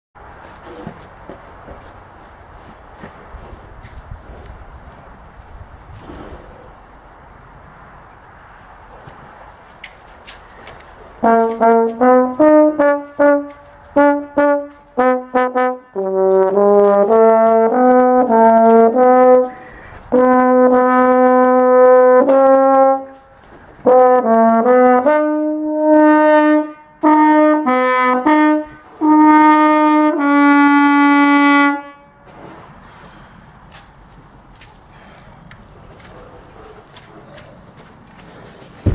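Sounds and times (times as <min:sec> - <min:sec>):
solo brass instrument melody: 0:11.2 - 0:32.2
player breathing: 0:19.5 - 0:20.1, 0:32.6 - 0:33.7, 0:34.8 - 0:38.9.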